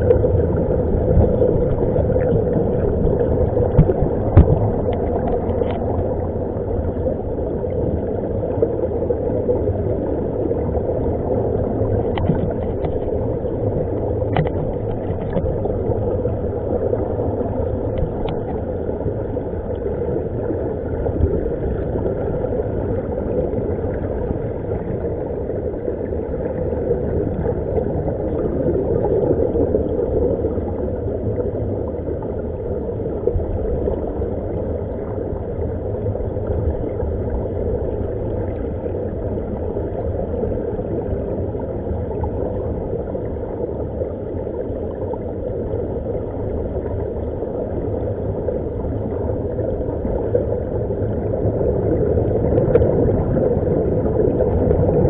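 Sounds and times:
air bubbling underwater: 0:00.0 - 0:31.6, 0:45.8 - 0:55.0.

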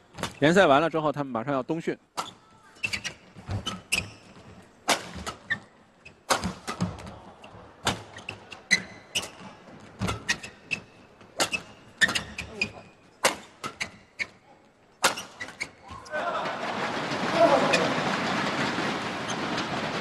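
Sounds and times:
shoes squeaking on court: 0:02.2 - 0:16.1
rackets striking shuttlecock: 0:04.8 - 0:05.6, 0:06.2 - 0:07.2, 0:13.2 - 0:14.0.

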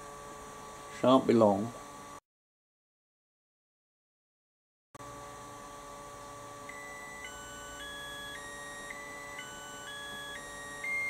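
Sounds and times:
steady hum with faint whine: 0:00.0 - 0:02.2, 0:05.0 - 0:11.0
charger electronic beeping tune: 0:06.7 - 0:11.0.

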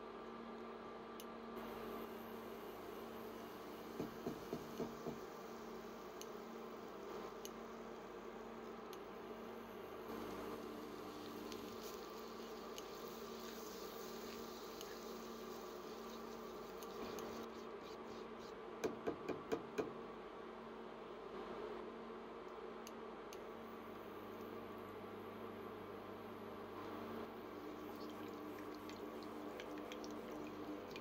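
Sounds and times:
induction cooktop humming: 0:00.0 - 0:21.1, 0:21.9 - 0:31.0
faint sizzling: 0:01.6 - 0:18.5, 0:23.4 - 0:31.0.

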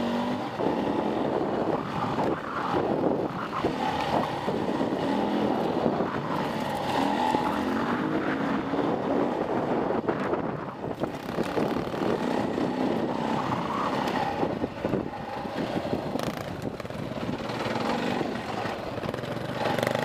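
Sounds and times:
dirt bike engine revving: 0:00.0 - 0:02.0, 0:11.0 - 0:20.0
wind on microphone: 0:00.0 - 0:20.0.

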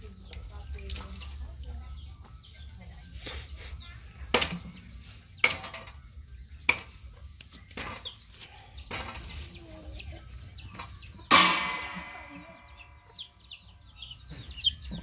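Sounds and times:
chickens clucking: 0:00.0 - 0:15.0
sharp knocks: 0:11.3 - 0:12.6.

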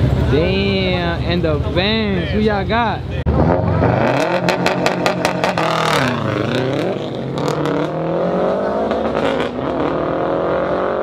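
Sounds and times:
race cars accelerating hard: 0:03.3 - 0:11.0.

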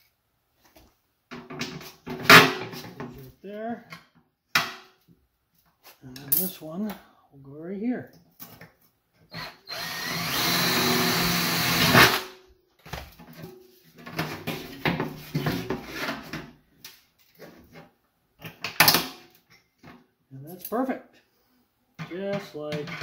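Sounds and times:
cordless drill boring through metal: 0:09.3 - 0:12.2.

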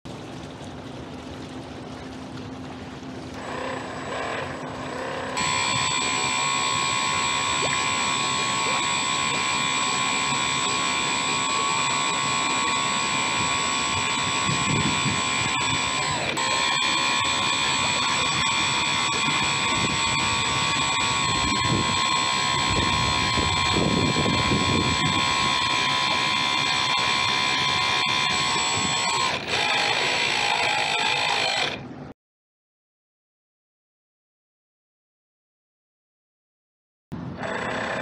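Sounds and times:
water splashing along hull: 0:00.1 - 0:30.4
model boat motor whining: 0:03.4 - 0:31.9, 0:37.3 - 0:38.0.

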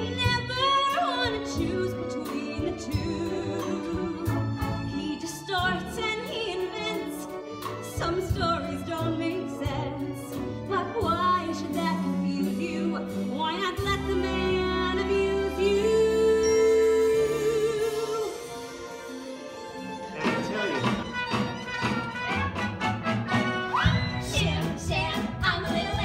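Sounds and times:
pit band playing: 0:00.1 - 0:26.0
person singing with vibrato: 0:14.2 - 0:18.7.

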